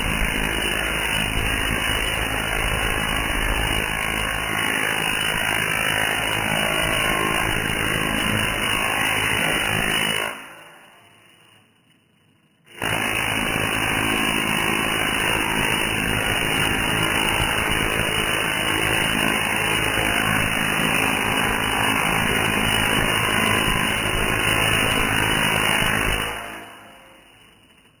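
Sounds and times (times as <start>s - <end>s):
tesla coil arcs crackling: 0.0s - 8.5s.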